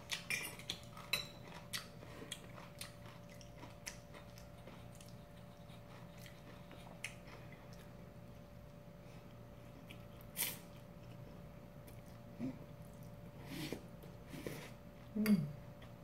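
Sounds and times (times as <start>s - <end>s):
faint steady hum: 0.0s - 16.0s
cutlery clinking on ceramic bowl: 0.3s - 1.4s.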